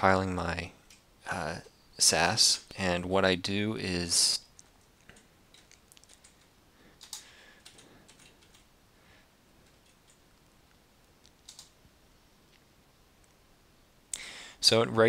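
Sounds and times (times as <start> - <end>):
keystrokes on computer keyboard: 4.6 - 8.7, 9.6 - 10.2, 11.2 - 11.8.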